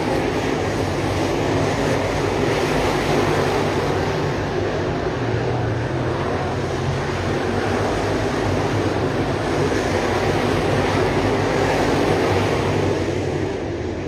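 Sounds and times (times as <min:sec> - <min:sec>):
race car engines droning: 0:00.0 - 0:14.0.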